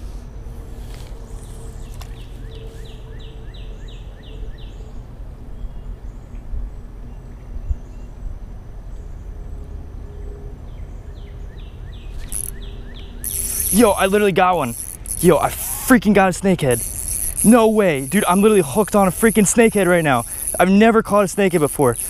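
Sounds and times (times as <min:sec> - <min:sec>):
fishing reel whirring: 0:12.2 - 0:22.0.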